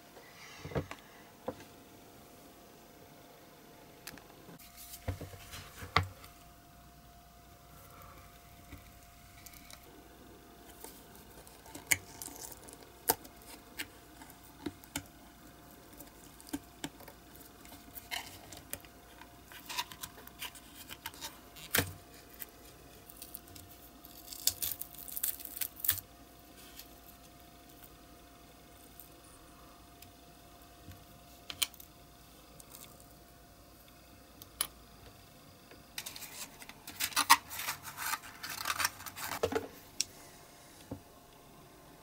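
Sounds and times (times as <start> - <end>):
faint steady hum: 0.0 - 42.0
silicone mold peeling rustle: 10.6 - 28.0, 36.0 - 40.1.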